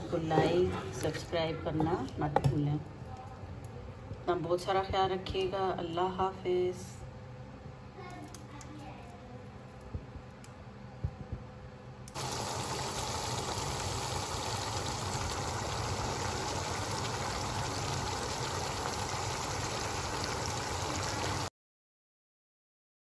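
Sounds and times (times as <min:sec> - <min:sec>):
food sizzling in a pan: 0:12.1 - 0:21.5.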